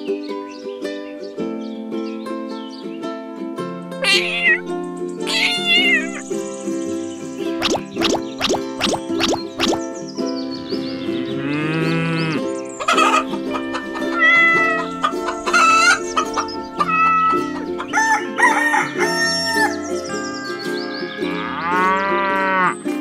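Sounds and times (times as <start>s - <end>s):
background music: 3.8s - 23.0s
chickens clucking: 4.1s - 23.0s
rooster crowing: 12.9s - 20.6s.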